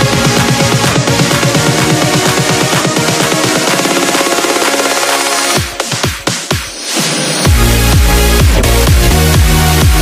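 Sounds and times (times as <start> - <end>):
kick drum: 0.0 - 5.0, 5.6 - 6.8, 7.5 - 10.0
sustained synth chords: 7.5 - 10.0.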